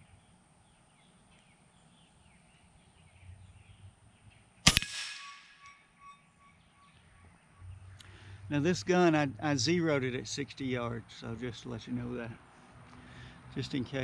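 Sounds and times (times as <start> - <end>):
small birds chirping: 0.0 - 4.7
air rifle shot crack: 4.6 - 5.7
faint metal ringing: 4.7 - 7.8.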